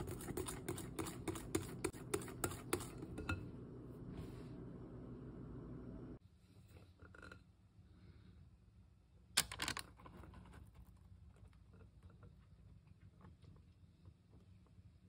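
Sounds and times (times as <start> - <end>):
low hum: 2.0 - 6.2.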